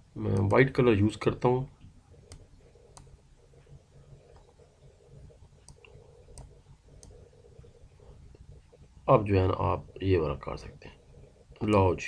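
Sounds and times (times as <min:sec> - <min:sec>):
low steady hum: 0:00.0 - 0:12.0
computer mouse clicks: 0:00.3 - 0:00.7, 0:01.8 - 0:08.5.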